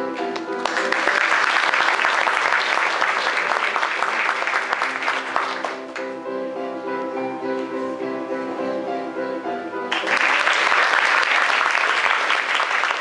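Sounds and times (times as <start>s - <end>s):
music with held notes: 0.0s - 13.0s
audience clapping: 0.3s - 6.2s, 9.9s - 13.0s.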